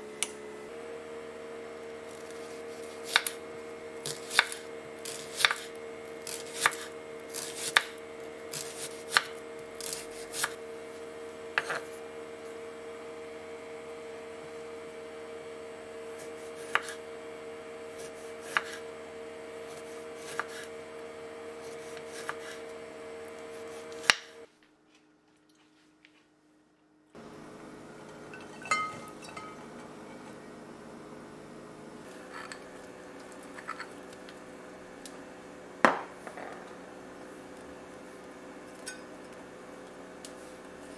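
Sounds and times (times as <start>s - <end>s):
steady hum: 27.1s - 40.9s.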